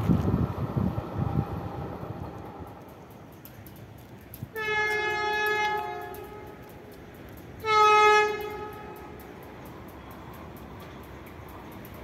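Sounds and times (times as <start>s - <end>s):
electric train horn blasts: 4.5s - 6.6s, 7.6s - 9.1s.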